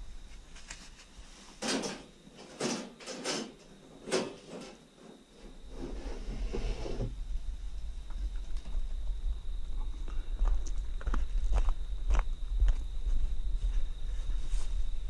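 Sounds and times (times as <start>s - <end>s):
low rumble: 6.4s - 15.0s.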